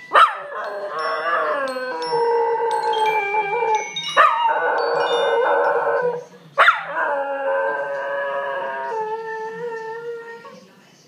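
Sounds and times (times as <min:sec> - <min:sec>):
phone ringtone: 0:00.0 - 0:06.3
dog howling: 0:00.2 - 0:10.6.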